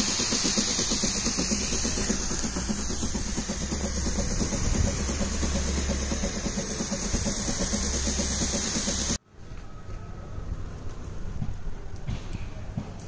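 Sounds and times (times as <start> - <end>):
electric pump chattering: 0.0 - 9.2
hiss of spray mist: 0.0 - 9.2.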